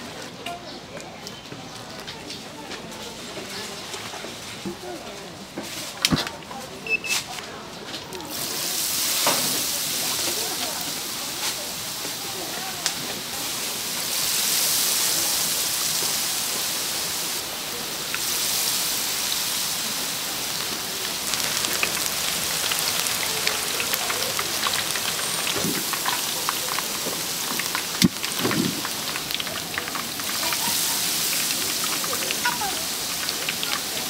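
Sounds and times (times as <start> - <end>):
fritters sizzling in hot oil: 8.1 - 34.0.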